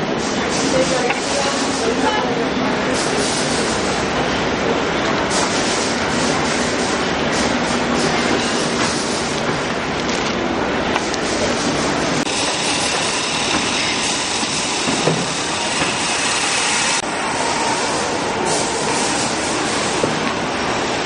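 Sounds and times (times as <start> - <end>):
factory machinery running: 0.0 - 21.0.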